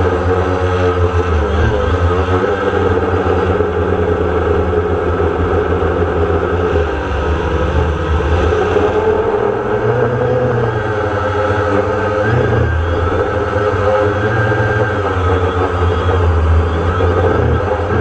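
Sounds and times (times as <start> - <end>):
drone propellers buzzing: 0.0 - 18.0
low rumble: 4.0 - 11.0.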